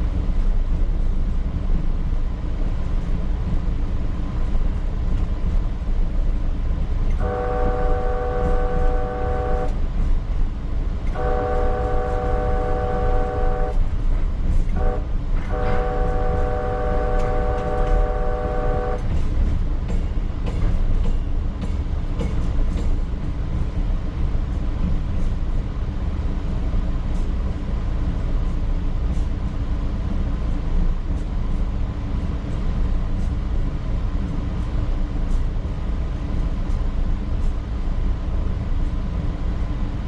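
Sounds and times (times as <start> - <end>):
train rumbling over rails: 0.0 - 40.0
train horn blasts: 7.1 - 9.8, 11.1 - 13.9, 14.7 - 19.3.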